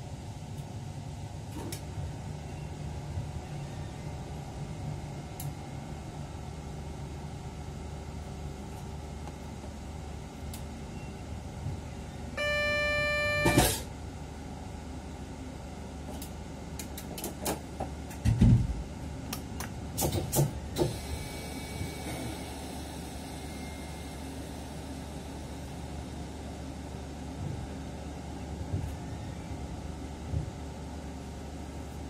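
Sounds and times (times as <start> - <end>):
train low hum: 0.0 - 32.0
electronic beep: 12.4 - 13.8.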